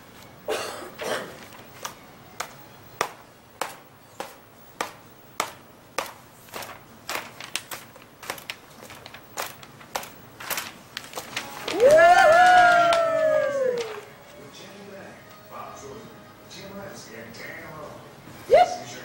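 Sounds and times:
sharp rhythmic taps: 0:01.8 - 0:08.6.

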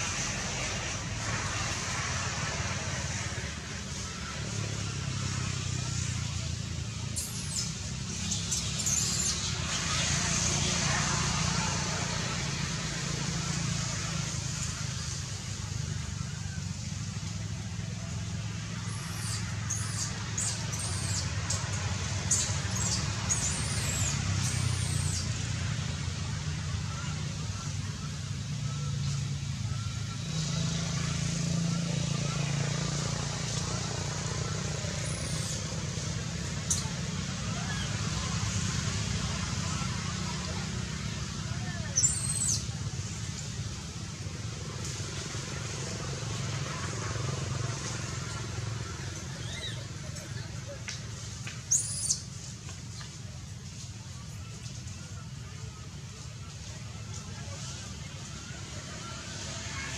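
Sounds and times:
baby monkey squealing cries: 0:18.9 - 0:21.2, 0:22.8 - 0:25.2, 0:42.0 - 0:42.6.

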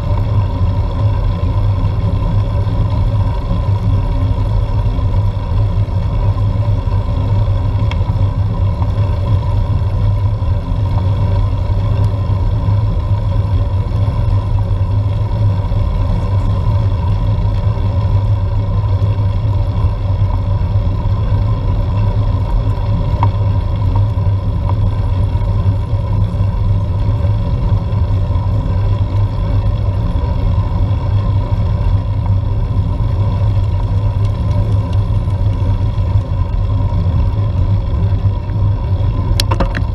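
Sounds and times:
faint steady whine: 0:00.0 - 0:39.9
wind and tyre rumble: 0:00.0 - 0:39.9.

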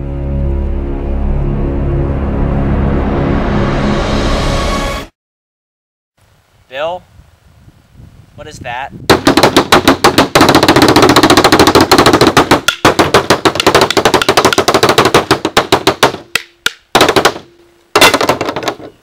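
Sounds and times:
sticks drumming on tabletop: 0:09.1 - 0:18.9.

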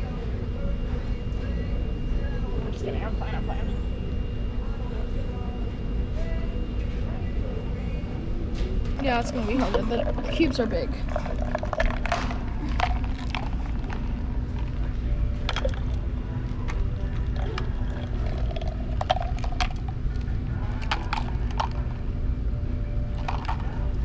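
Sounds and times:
low room hum: 0:00.0 - 0:24.0
plastic cups clicking: 0:09.0 - 0:16.0, 0:16.6 - 0:21.9, 0:23.2 - 0:24.0
soda pouring: 0:09.8 - 0:14.9, 0:15.5 - 0:21.8, 0:23.2 - 0:23.9.

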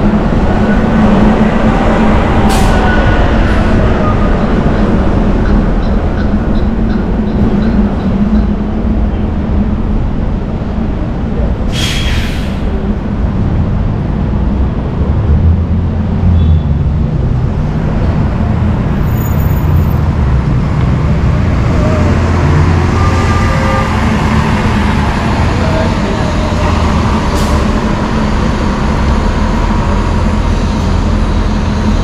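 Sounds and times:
heavy vehicle engines rumbling: 0:00.0 - 0:32.0
air brake hiss: 0:11.7 - 0:12.8.

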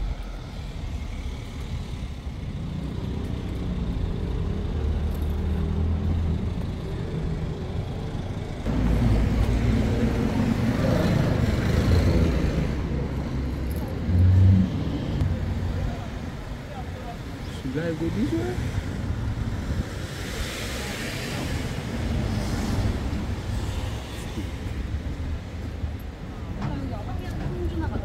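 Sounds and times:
vehicle engine running: 0:00.0 - 0:14.3.

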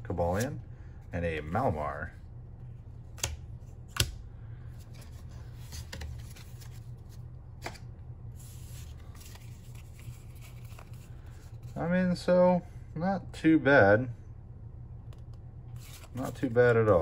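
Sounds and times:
low steady hum: 0:00.0 - 0:17.0
cards sliding and rustling: 0:04.8 - 0:11.8, 0:15.7 - 0:17.0.

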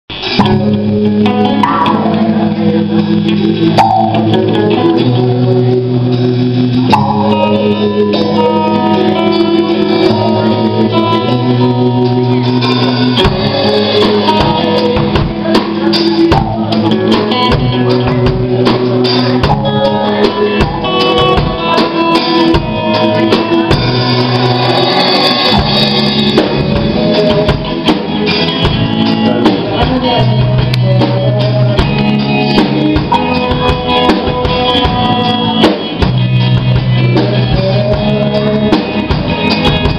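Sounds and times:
live band playing pop-rock: 0:00.1 - 0:39.9
drum hits: 0:01.6 - 0:02.4.

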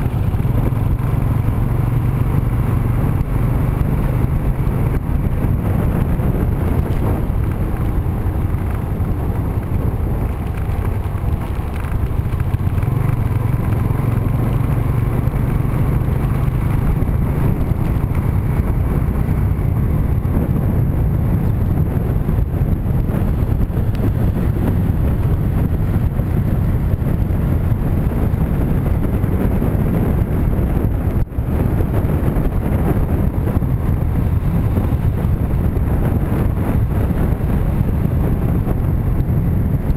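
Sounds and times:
motorbike engine running: 0:00.0 - 0:39.9
wind noise on microphone: 0:00.0 - 0:39.9.

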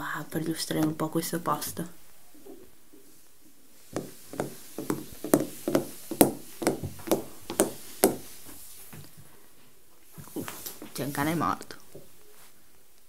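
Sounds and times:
footsteps on wooden floor: 0:03.9 - 0:09.3.

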